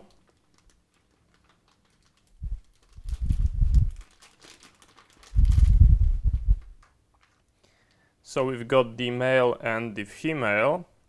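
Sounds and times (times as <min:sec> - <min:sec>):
plastic bag crinkling: 0:00.0 - 0:08.0
low rumble of handling: 0:02.3 - 0:04.2, 0:05.2 - 0:06.9.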